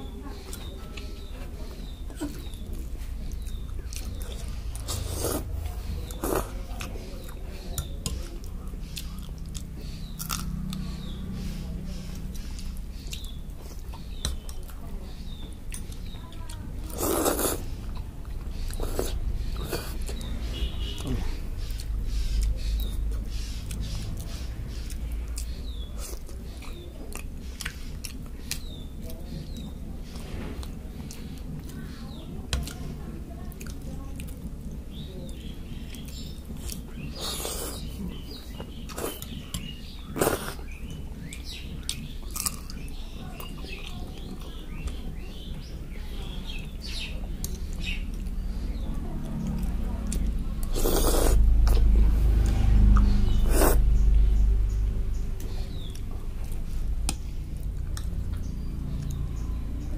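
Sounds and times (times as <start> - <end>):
wet chewing: 1.9 - 11.2, 12.1 - 45.8, 49.2 - 54.2, 55.1 - 59.3
noodle slurps: 50.7 - 51.4.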